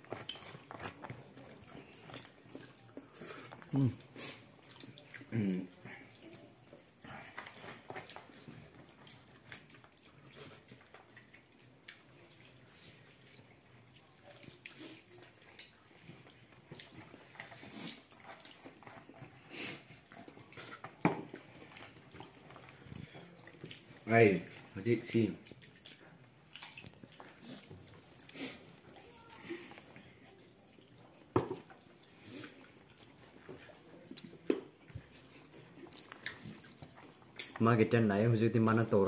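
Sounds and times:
chewing smacks: 0:00.0 - 0:24.8, 0:25.4 - 0:37.6
fingers mixing rice: 0:00.0 - 0:29.0.

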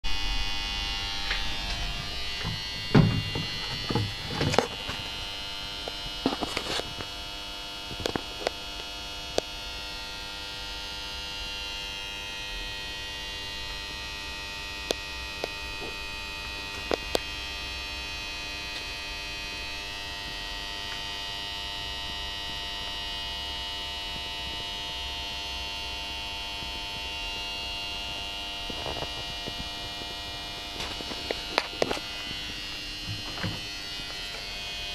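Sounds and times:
electrical hum: 0:00.0 - 0:34.9
high whining tones: 0:00.1 - 0:07.0
knocks and rubs: 0:01.4 - 0:05.2.

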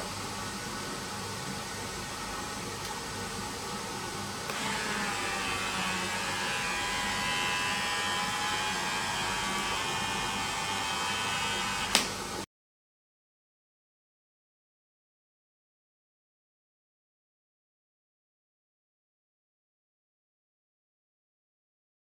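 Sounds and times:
small electric motor whining: 0:04.5 - 0:12.1.

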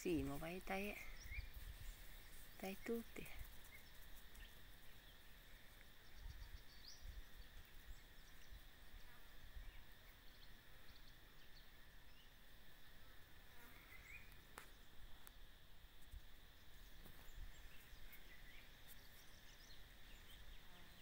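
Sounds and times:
faint bird chirps: 0:00.0 - 0:12.4, 0:13.6 - 0:15.0
faint insect drone: 0:00.0 - 0:21.0.

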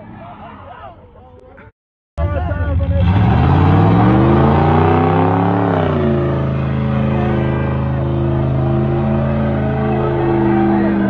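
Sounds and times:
car engine revving hard: 0:02.6 - 0:11.0.

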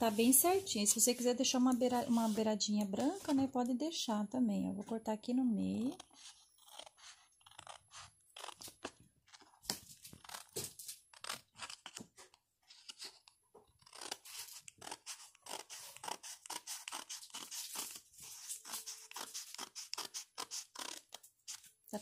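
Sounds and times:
scissors snipping paper: 0:05.9 - 0:12.0, 0:12.8 - 0:21.7.

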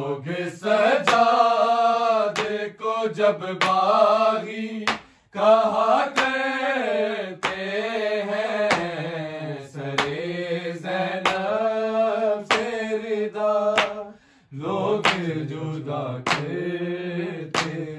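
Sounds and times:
men chanting: 0:00.0 - 0:17.9
hand-struck beat: 0:03.6 - 0:03.9, 0:06.2 - 0:06.4, 0:07.4 - 0:07.7, 0:08.6 - 0:09.0, 0:10.0 - 0:10.2, 0:11.2 - 0:11.6, 0:12.5 - 0:12.8, 0:13.7 - 0:14.1, 0:15.0 - 0:15.4, 0:16.3 - 0:16.6, 0:17.5 - 0:17.9.

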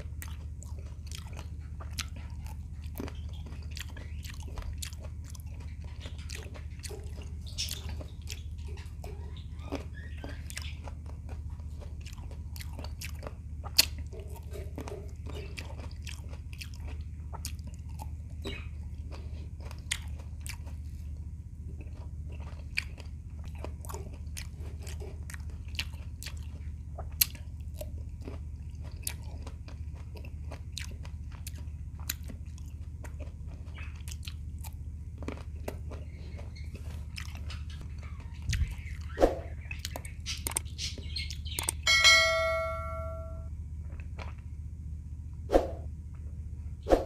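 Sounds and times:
chewing and biting grapes: 0:00.0 - 0:41.9, 0:43.6 - 0:46.6
steady low hum: 0:00.0 - 0:47.0
bell-like ding: 0:41.9 - 0:43.5.

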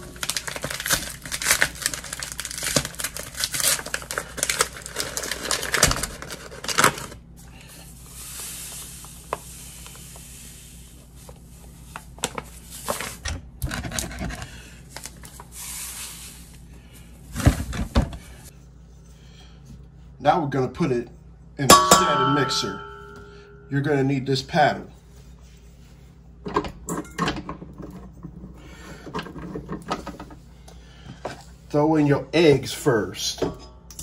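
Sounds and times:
paper bag tearing and crinkling: 0:00.0 - 0:07.2.

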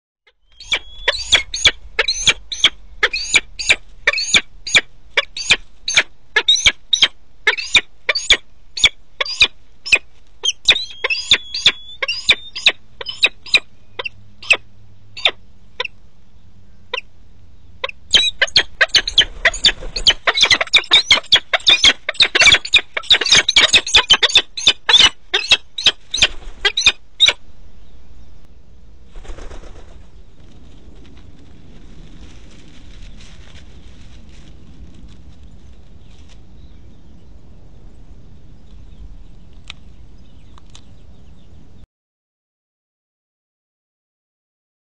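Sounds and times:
falcon calling: 0:00.4 - 0:14.6, 0:17.8 - 0:27.4.

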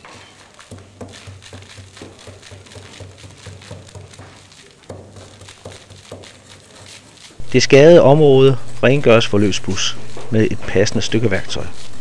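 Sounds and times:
hammer tapping on plaster: 0:00.0 - 0:07.3.

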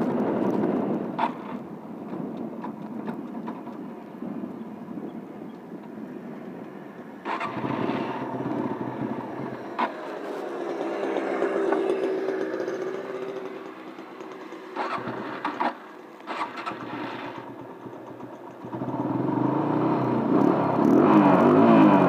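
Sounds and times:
motorcycle engine revving: 0:05.9 - 0:22.0.

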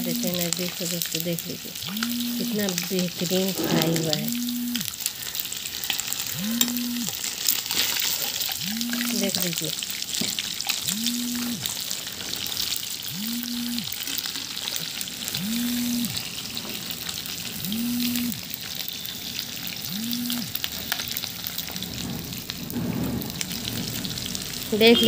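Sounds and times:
fish frying in hot oil: 0:00.0 - 0:25.0.

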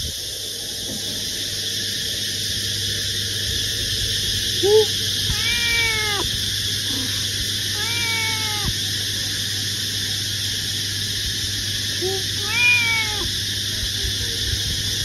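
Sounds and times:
cat meowing: 0:05.3 - 0:06.4, 0:07.7 - 0:08.8, 0:12.0 - 0:13.3.

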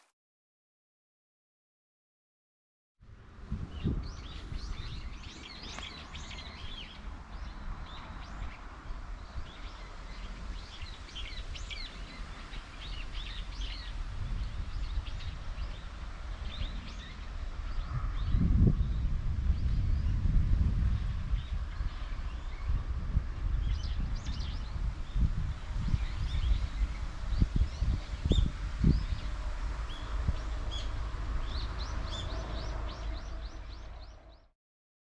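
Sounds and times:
small birds chirping: 0:03.7 - 0:20.3.

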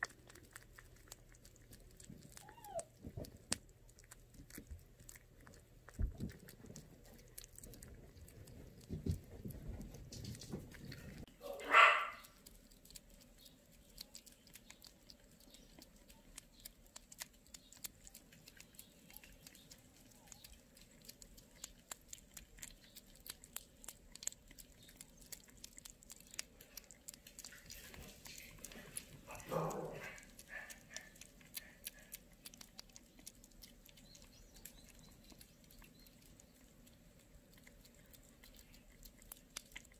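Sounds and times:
kittens lapping and chewing: 0:00.0 - 0:39.9
kitten crying: 0:02.3 - 0:03.0.

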